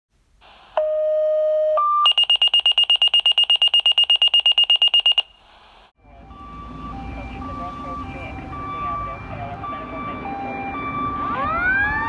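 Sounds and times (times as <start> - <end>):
electronic alarm tones: 0.8 - 5.4
rapid high-pitched beeping: 2.1 - 5.3.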